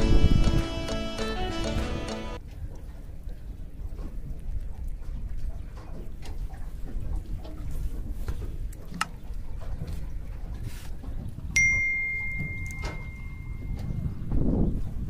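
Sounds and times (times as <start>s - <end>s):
notification bell ding: 11.6s - 14.0s.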